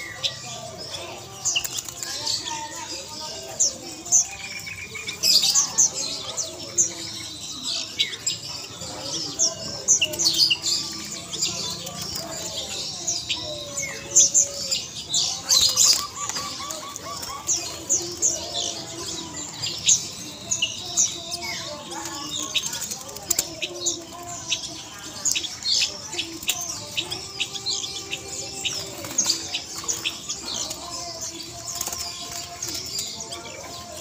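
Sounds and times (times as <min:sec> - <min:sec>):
caged birds chirping: 0:00.0 - 0:34.0
doves flapping wings against cage: 0:31.5 - 0:33.1.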